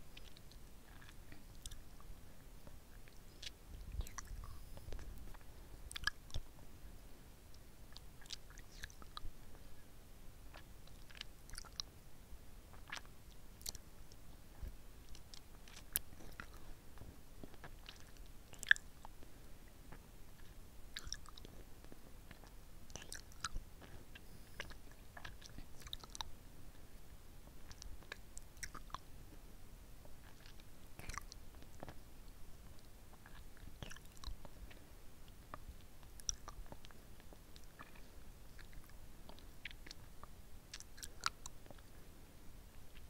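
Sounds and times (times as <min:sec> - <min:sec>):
licking and sucking lollipop: 0:00.2 - 0:02.1, 0:02.9 - 0:06.5, 0:07.5 - 0:09.3, 0:10.5 - 0:11.9, 0:12.7 - 0:16.7, 0:19.9 - 0:26.3, 0:27.6 - 0:29.0, 0:30.2 - 0:32.0, 0:32.6 - 0:41.9.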